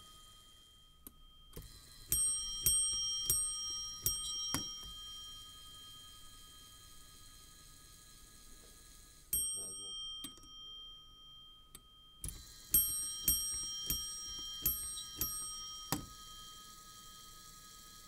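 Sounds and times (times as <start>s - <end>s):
hammer striking bell: 1.0s - 6.2s, 9.4s - 16.6s.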